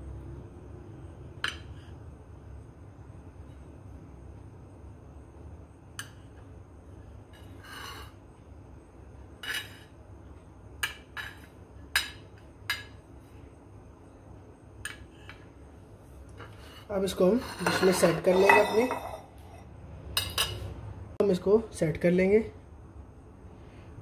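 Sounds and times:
low steady hum: 0.0s - 24.0s.

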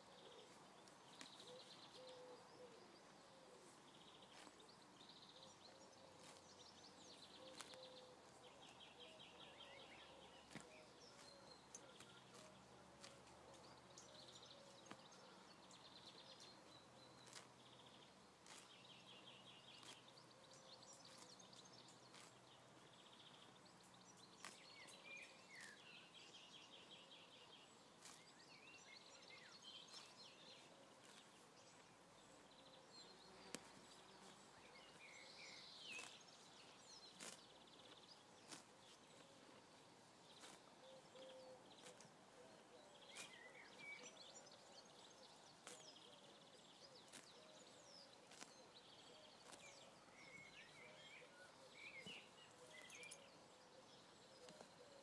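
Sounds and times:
horse cropping grass: 0.4s - 1.5s, 4.2s - 4.9s, 5.5s - 8.8s, 9.9s - 15.2s, 17.2s - 20.3s, 20.9s - 23.0s, 24.4s - 25.9s, 27.8s - 28.8s, 29.6s - 32.5s, 33.3s - 42.3s, 43.0s - 44.1s, 45.5s - 50.8s.

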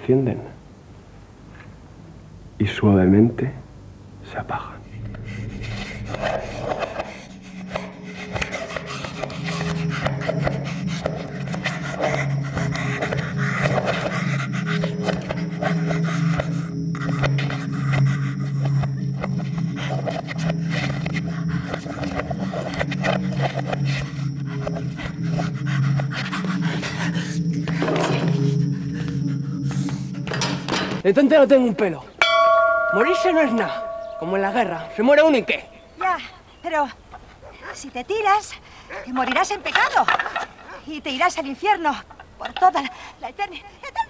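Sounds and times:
low steady hum: 0.0s - 9.0s, 32.1s - 36.6s
low droning film score: 4.1s - 31.0s, 32.2s - 36.7s
man breathing hard and straining: 4.7s - 18.7s, 19.5s - 30.2s.

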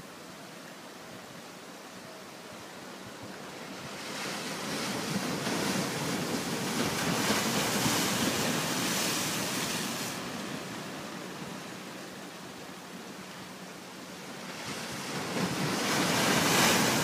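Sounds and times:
ocean wave washing in: 3.6s - 12.0s, 14.2s - 17.0s.

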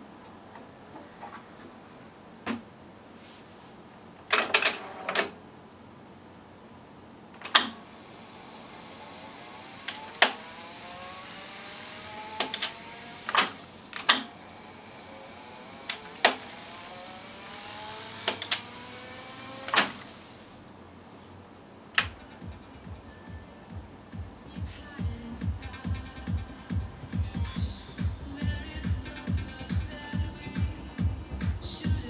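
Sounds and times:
tape reels fast-winding: 8.3s - 20.4s.

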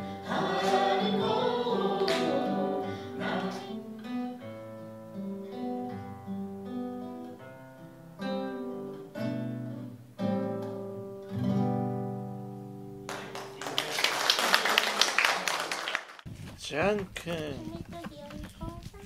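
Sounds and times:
acoustic guitar: 0.0s - 13.6s
applause: 13.1s - 16.2s.

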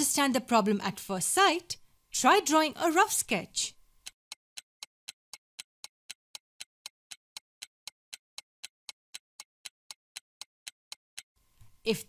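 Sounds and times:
clock-like ticking: 4.0s - 11.3s.

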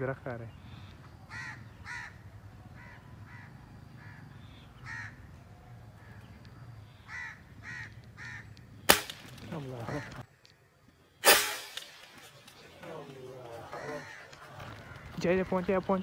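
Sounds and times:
bird calling: 0.0s - 16.0s
rifle shot: 8.9s - 9.6s, 11.2s - 12.3s.

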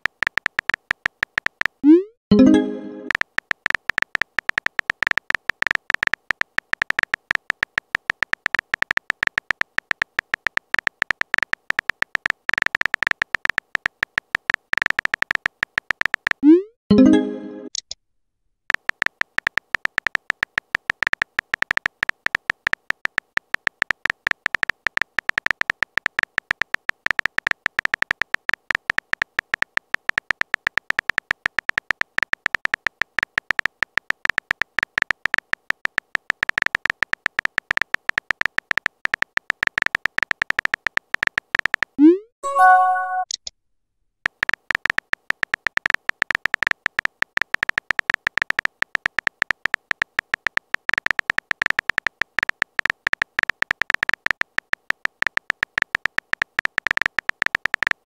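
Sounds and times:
keyboard tap clicks: 0.2s - 1.8s, 3.0s - 16.4s.

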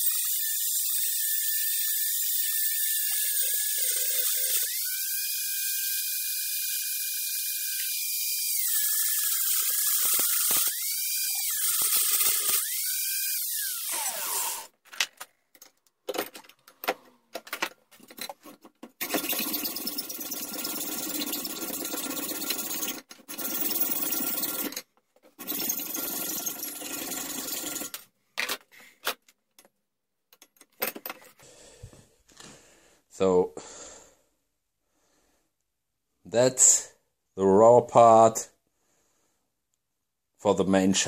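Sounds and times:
angle grinder grinding steel: 0.0s - 14.7s, 18.1s - 24.8s, 25.4s - 28.0s
metal clinks and knocks: 15.1s - 19.0s, 30.3s - 31.4s.

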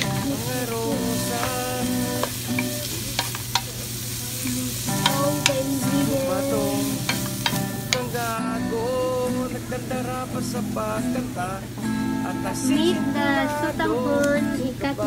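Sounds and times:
background music melody: 0.0s - 3.2s, 4.4s - 11.2s
vegetables sizzling in pan: 0.0s - 15.0s
spatula scraping and knocking pan: 4.4s - 8.2s.

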